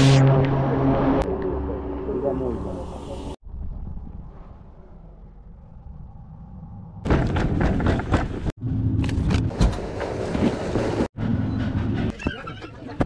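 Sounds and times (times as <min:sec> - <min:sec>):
low rumble: 0:00.0 - 0:07.8
knocks and clattering: 0:07.0 - 0:08.5.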